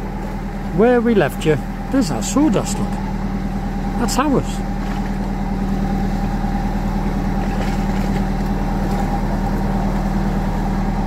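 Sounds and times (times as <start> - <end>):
boat engine running: 0.0 - 11.0.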